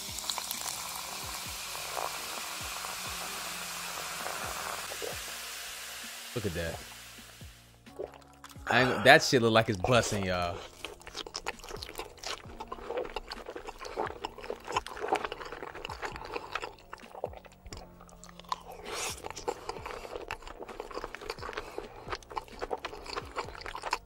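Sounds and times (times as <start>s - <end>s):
person chewing food: 7.9s - 9.0s, 9.7s - 24.0s.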